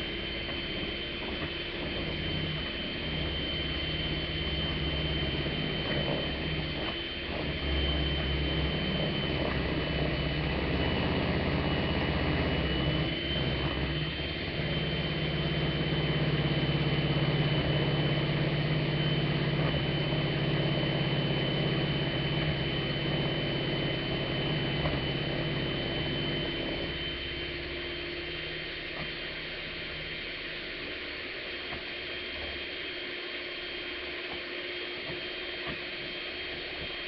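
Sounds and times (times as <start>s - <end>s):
electric mixer whirring: 0.0s - 29.3s.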